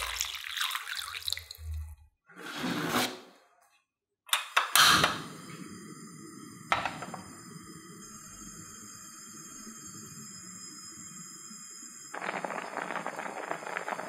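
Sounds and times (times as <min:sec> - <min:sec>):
gas flame hissing: 0:04.6 - 0:14.0
gas burner whoosh: 0:04.7 - 0:10.9.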